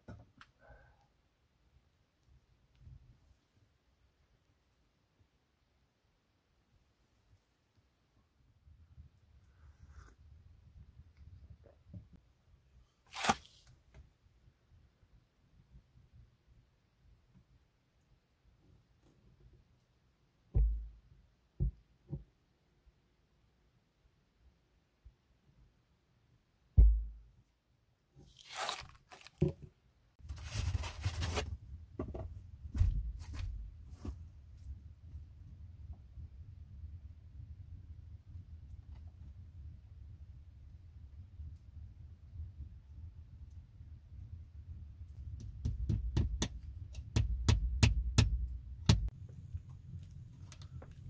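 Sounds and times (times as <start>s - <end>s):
crunching and rustling: 13.0s - 13.7s, 28.2s - 29.6s, 30.2s - 31.6s
low thump: 20.5s - 21.0s, 26.8s - 27.2s.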